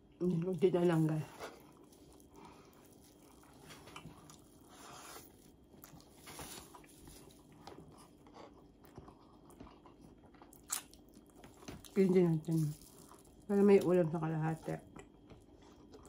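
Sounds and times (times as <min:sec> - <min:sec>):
chewing and mouth clicks: 0:01.4 - 0:13.5, 0:14.7 - 0:16.0.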